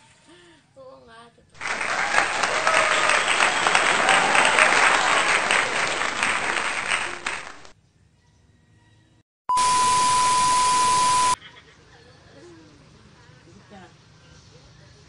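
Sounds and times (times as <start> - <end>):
crowd applauding: 1.6 - 7.7.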